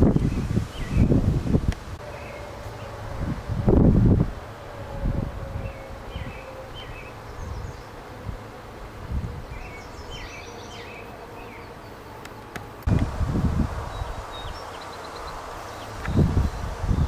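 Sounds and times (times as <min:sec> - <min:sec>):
songbirds twittering: 0:00.0 - 0:01.4, 0:02.0 - 0:03.4, 0:04.5 - 0:13.0, 0:13.7 - 0:17.0
wind rumbling on microphone: 0:00.0 - 0:17.0.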